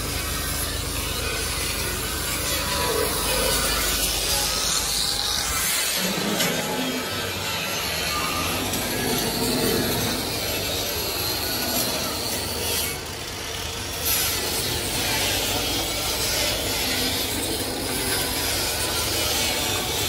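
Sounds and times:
metal part rubbing and scraping: 0:01.4 - 0:13.1.

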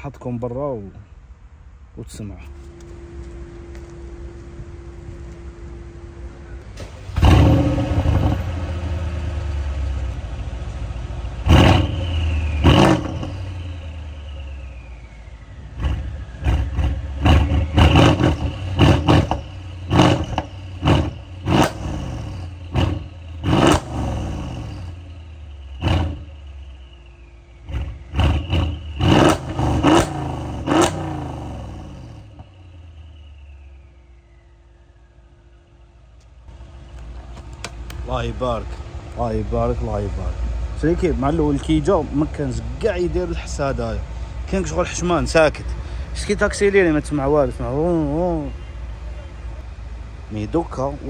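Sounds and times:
car engine idling: 0:02.2 - 0:51.0
car engine revving: 0:05.2 - 0:34.4.

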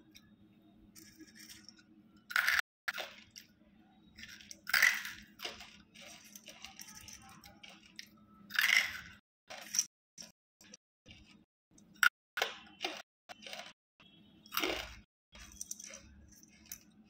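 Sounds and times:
soft chewing crunches: 0:02.9 - 0:08.2, 0:09.5 - 0:17.0
loud crunching bites: 0:12.4 - 0:13.8, 0:14.5 - 0:16.9.

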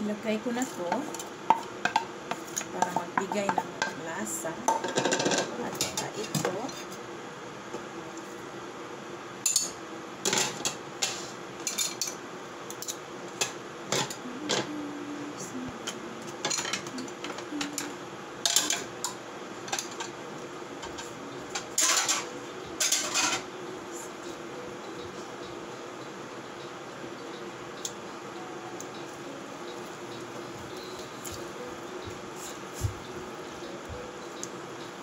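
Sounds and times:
utensils clinking against pan: 0:04.7 - 0:06.9, 0:09.5 - 0:12.2, 0:16.4 - 0:18.9, 0:20.8 - 0:23.4.

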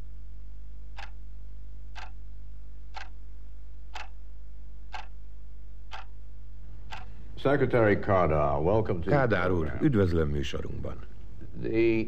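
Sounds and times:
low electrical hum: 0:00.0 - 0:12.0
clock ticking: 0:00.9 - 0:01.2, 0:01.9 - 0:02.2, 0:02.9 - 0:03.2, 0:03.9 - 0:04.2, 0:04.9 - 0:05.2, 0:05.9 - 0:06.2, 0:06.9 - 0:07.2.

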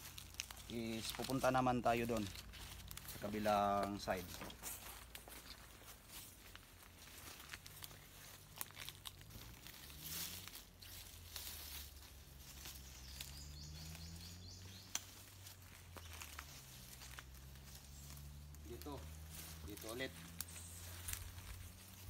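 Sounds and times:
twig snaps: 0:00.0 - 0:01.4, 0:14.9 - 0:15.2
footsteps crunching through leaves: 0:00.0 - 0:22.0.

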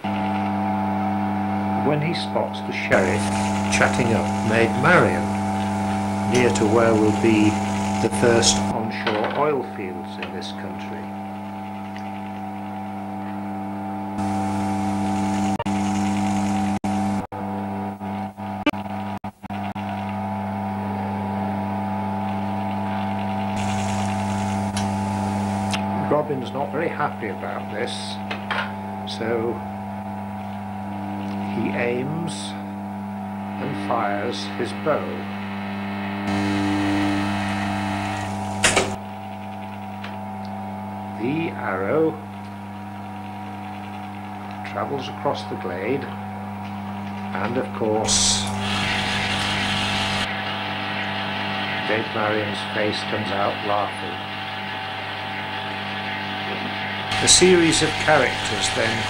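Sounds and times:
mechanism whirring: 0:00.0 - 0:09.0, 0:19.3 - 0:59.0
small electric motor humming: 0:02.9 - 0:08.8, 0:11.1 - 0:17.2, 0:19.6 - 0:26.2, 0:27.2 - 0:44.6, 0:45.7 - 0:59.0
hiss: 0:48.1 - 0:50.3.

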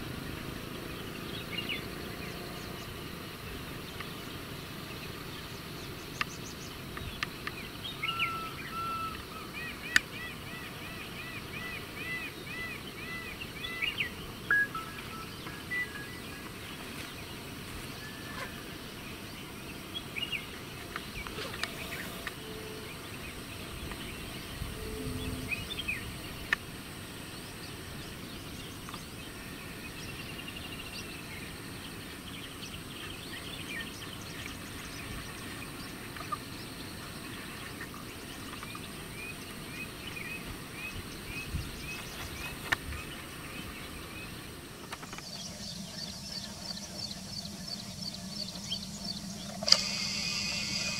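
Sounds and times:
birds chirping: 0:00.0 - 0:50.9
steady background hiss: 0:00.0 - 0:50.9
short repeated bird notes: 0:48.6 - 0:50.9.

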